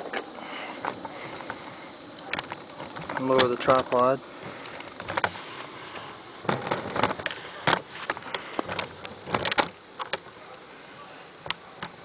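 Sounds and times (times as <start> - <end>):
tripod clicks and knocks: 4.6 - 5.4, 6.4 - 10.3.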